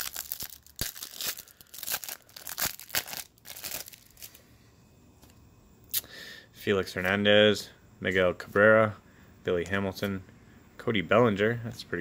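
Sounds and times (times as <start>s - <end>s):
plastic wrapper tearing and crinkling: 0.0s - 4.4s.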